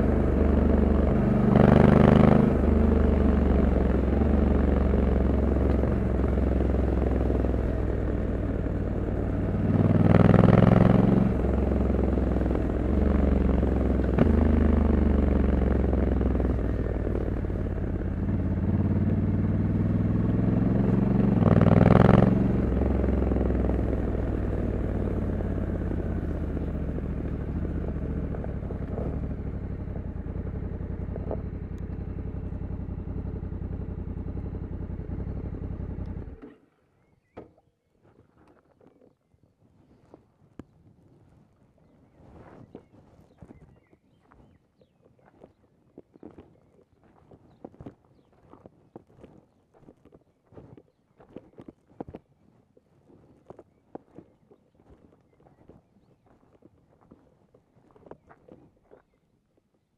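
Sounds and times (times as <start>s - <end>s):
motorcycle engine on the road: 0.0s - 39.3s.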